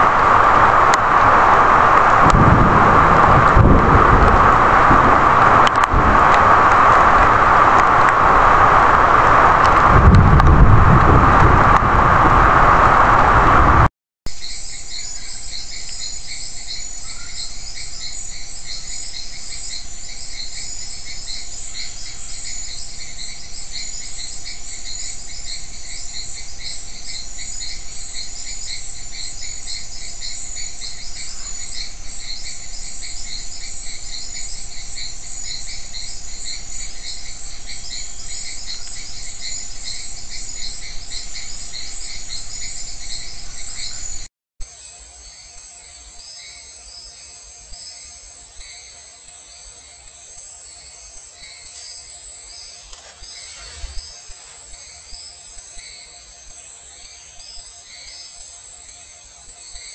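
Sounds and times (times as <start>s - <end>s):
loud rush of noise: 0.0s - 13.9s, 19.3s - 44.3s
crickets and insects trilling: 0.0s - 59.9s.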